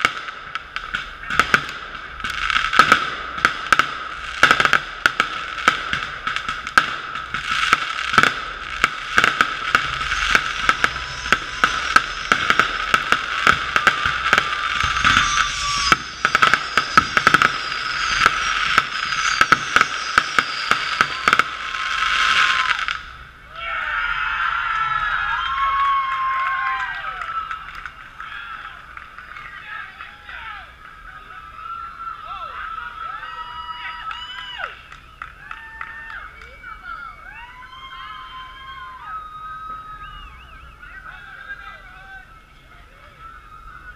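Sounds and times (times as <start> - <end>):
muffled fireworks bangs and crackles: 0.0 - 23.3.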